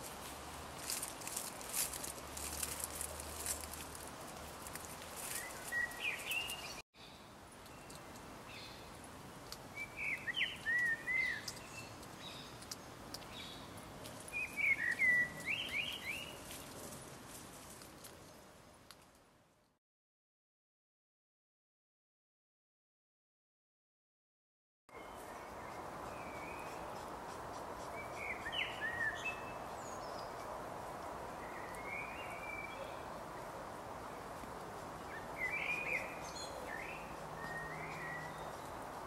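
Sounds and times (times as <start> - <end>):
outdoor background hiss: 0.0 - 19.8, 24.9 - 39.0
songbird chirping: 0.5 - 17.0, 24.9 - 39.0.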